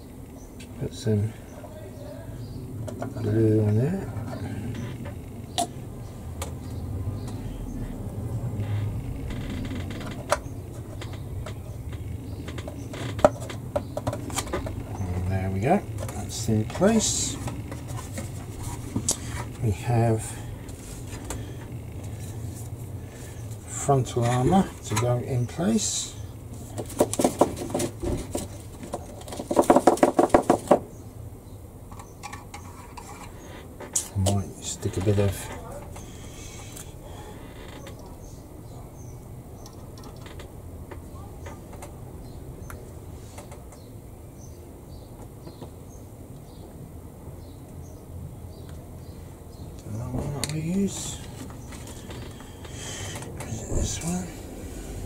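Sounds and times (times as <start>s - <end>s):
low steady hum: 0.0s - 29.4s.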